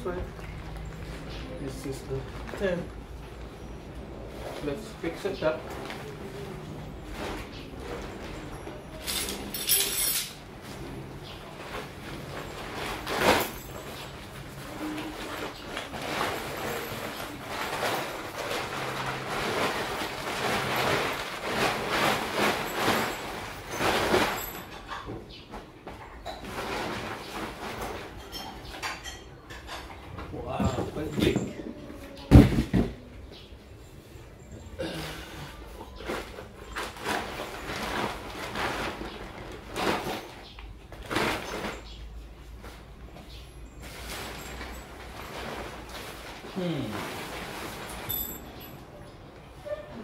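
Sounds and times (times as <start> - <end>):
tent fabric rustling and flapping: 10.6 - 24.7, 43.8 - 48.4.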